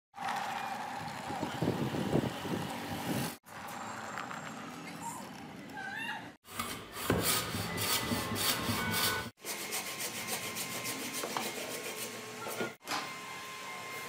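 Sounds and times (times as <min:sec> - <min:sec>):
saw rasping through wood: 0:06.5 - 0:12.8.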